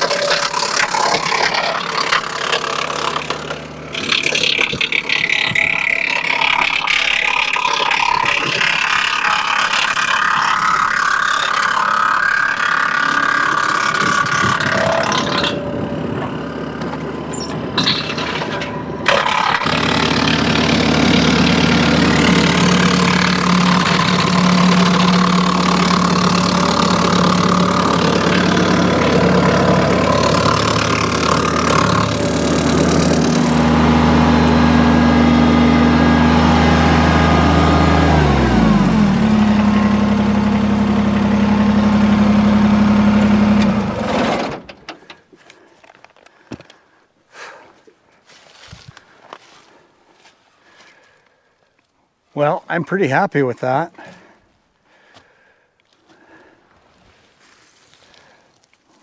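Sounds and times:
wood chipper spinning: 0.0s - 46.8s
tractor diesel engine running: 0.0s - 51.5s.

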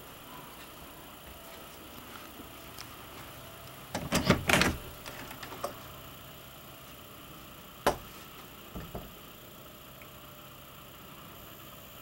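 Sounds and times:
sharp knocks and clicks: 7.8s - 8.1s, 8.7s - 9.1s.

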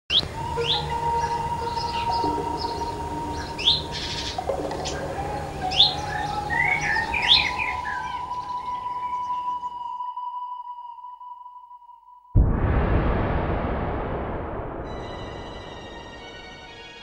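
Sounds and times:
songbird chirping: 0.1s - 10.7s.

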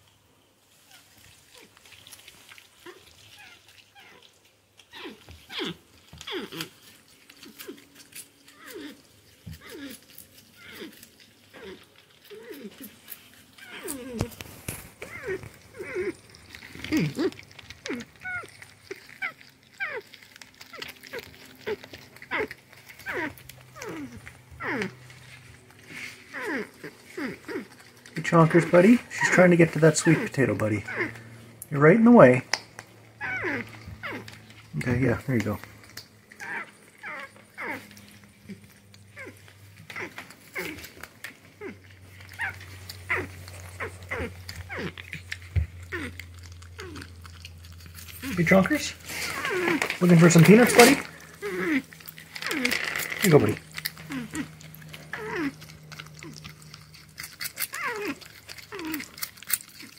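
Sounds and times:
low steady hum: 0.0s - 59.9s
porcupine crying calls: 0.8s - 59.9s.

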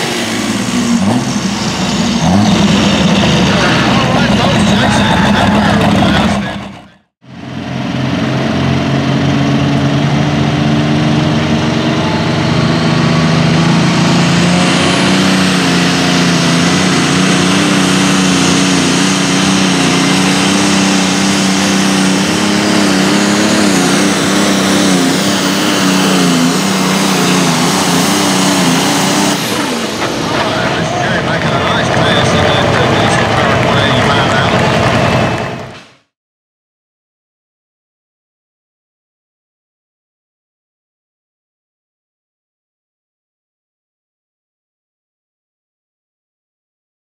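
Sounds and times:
tractor engine at full throttle: 0.0s - 36.1s.

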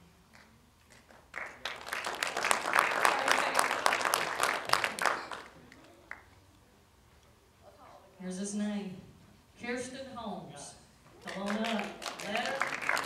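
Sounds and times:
audience clapping: 0.3s - 6.4s, 11.2s - 13.0s.

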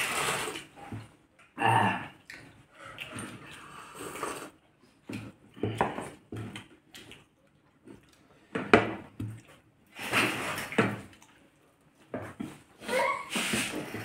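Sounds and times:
slurping: 0.0s - 0.8s, 2.8s - 4.6s.

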